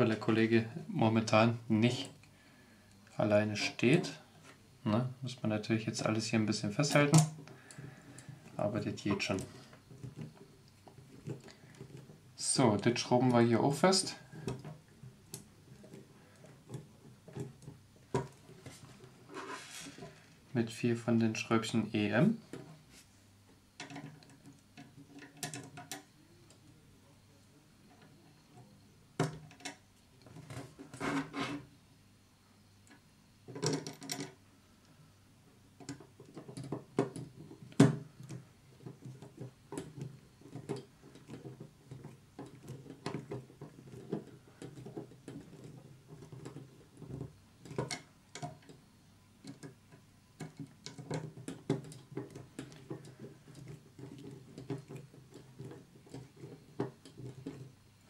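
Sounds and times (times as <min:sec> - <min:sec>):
handling noise: 0:06.0 - 0:20.6, 0:35.8 - 0:58.0.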